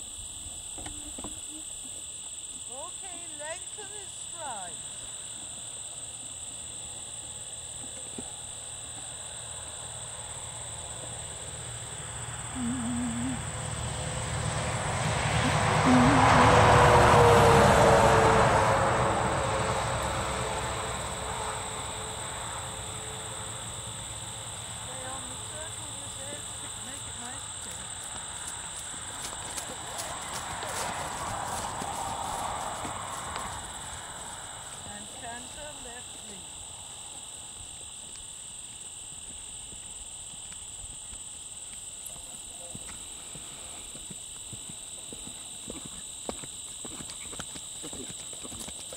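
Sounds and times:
insect chorus: 0.0 - 48.9
passing vehicle rumble: 9.8 - 37.1
hoofbeats on grass: 25.2 - 35.8, 42.2 - 48.9.

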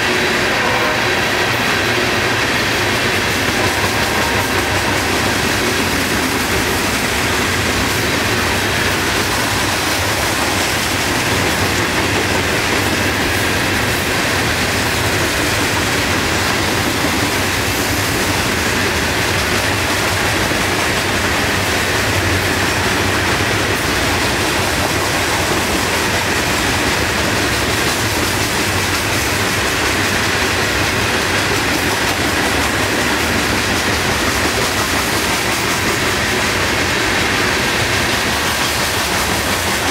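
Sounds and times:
freight train wheels on rails: 0.0 - 39.9.

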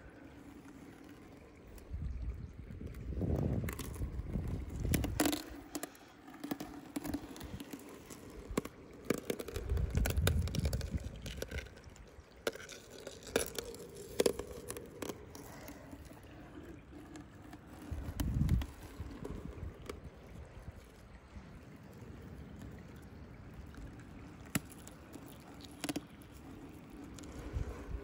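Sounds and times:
ice clicking and scraping: 0.0 - 21.0, 23.7 - 28.0
water drips and splashes: 0.0 - 28.0
wind rumble on microphone: 1.4 - 5.8, 9.4 - 12.2, 16.4 - 24.5, 26.4 - 28.0.

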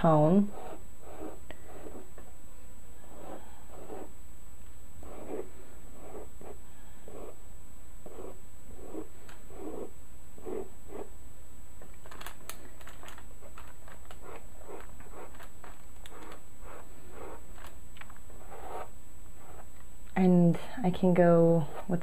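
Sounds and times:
steady low hum: 0.0 - 22.0
stylus dragging across paper: 0.4 - 2.3, 3.0 - 4.2, 5.0 - 7.4, 8.0 - 11.1, 14.1 - 19.7.

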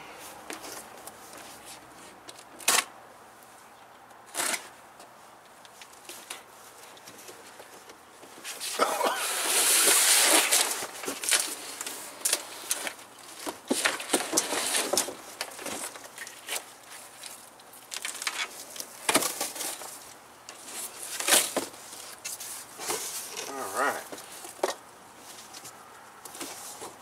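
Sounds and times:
cardboard rustling and scraping: 6.0 - 27.0
packing crackles and knocks: 9.8 - 27.0.

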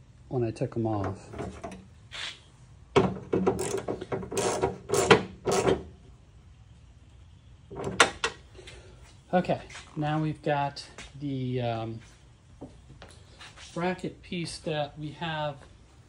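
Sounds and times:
socket ratchet clicking: 3.5 - 5.8.

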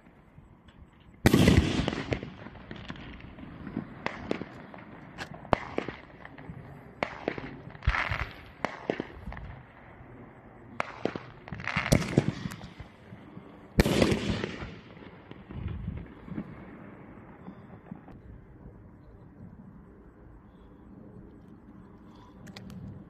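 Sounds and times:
firework cracks: 1.2 - 9.7, 10.7 - 13.1, 13.7 - 16.8
firework rushing bursts: 10.7 - 18.2.

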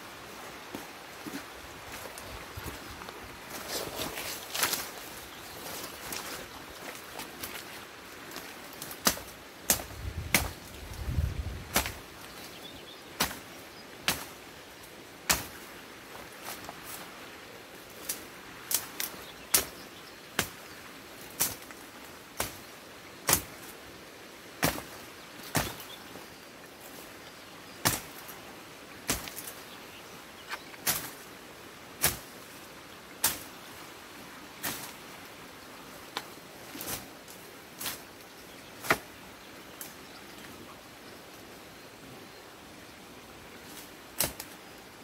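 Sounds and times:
sticks and branches snapping: 3.5 - 5.0, 8.3 - 12.1, 13.2 - 14.4, 15.3 - 15.6, 18.0 - 19.8, 20.4 - 20.6, 21.3 - 21.8, 23.3 - 23.6, 24.6 - 25.8, 27.8 - 28.3, 29.0 - 29.6, 30.5 - 31.2, 32.0 - 32.3, 33.2 - 33.6, 36.1 - 38.1, 38.8 - 39.2, 44.2 - 44.6.

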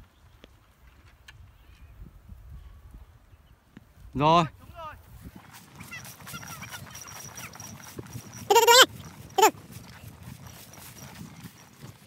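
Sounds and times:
loud animal calls: 8.5 - 9.5.

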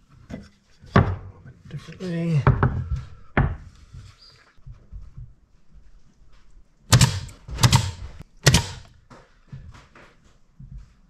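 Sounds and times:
nailer shots: 6.9 - 8.9.

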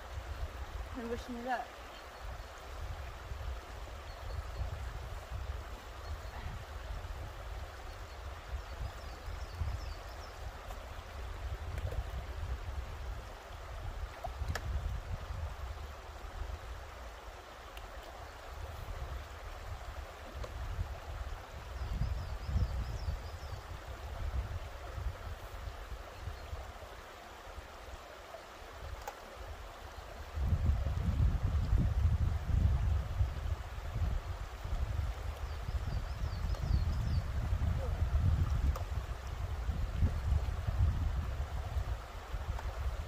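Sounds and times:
river rushing over stones: 0.0 - 22.1, 22.8 - 43.0.

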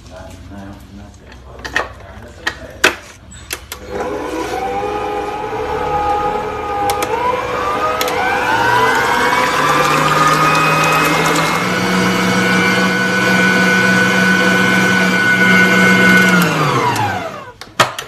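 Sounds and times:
stand mixer motor whisking: 3.8 - 17.6.

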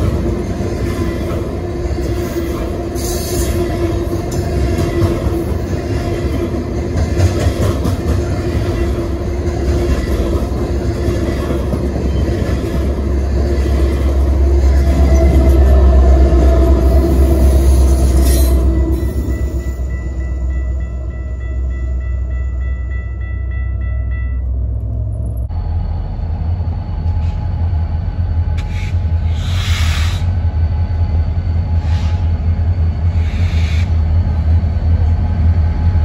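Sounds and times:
diesel locomotive passing: 0.0 - 36.0
freight cars rumbling over rails: 0.0 - 36.0
railroad crossing bell ringing: 16.7 - 25.9.

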